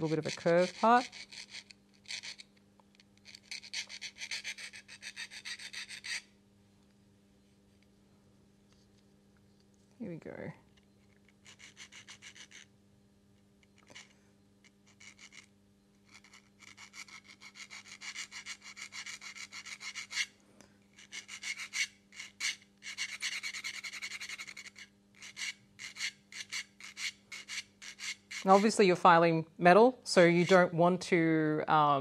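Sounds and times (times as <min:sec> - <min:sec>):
needle file scraping metal: 0:00.0 - 0:02.6, 0:03.2 - 0:06.3, 0:11.2 - 0:12.7, 0:13.8 - 0:20.4, 0:21.0 - 0:28.8, 0:30.2 - 0:30.7.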